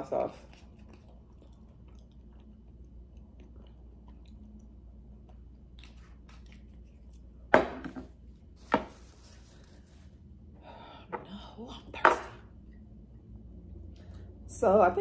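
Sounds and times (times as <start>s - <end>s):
quiet chewing: 0.2s - 7.5s.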